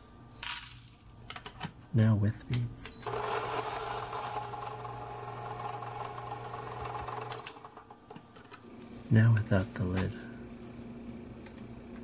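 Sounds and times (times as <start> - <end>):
coffee grinder motor hum: 3.0 - 8.0
coffee beans crunching in grinder: 3.1 - 7.5.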